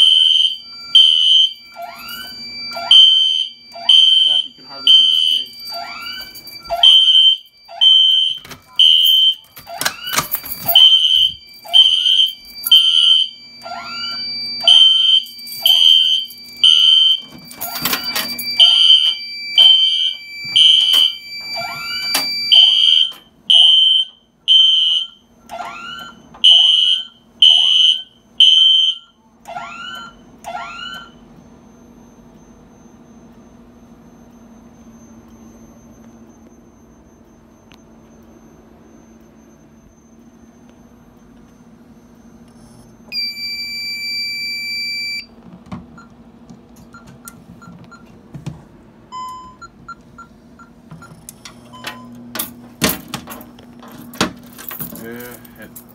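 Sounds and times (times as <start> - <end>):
steady high tone: 0.0 - 20.2
fire alarm horn blasts: 0.0 - 31.2, 43.1 - 45.3.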